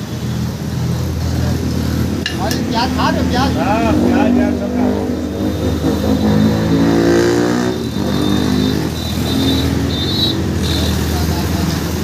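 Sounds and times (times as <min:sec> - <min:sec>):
street traffic hum: 0:00.0 - 0:12.0
vehicle engine revving: 0:00.8 - 0:12.0.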